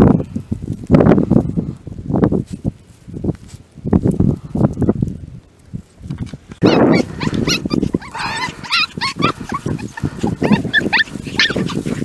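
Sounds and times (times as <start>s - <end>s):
rustling through grass: 0.3s - 12.0s
puppies yipping and whining: 6.6s - 12.0s.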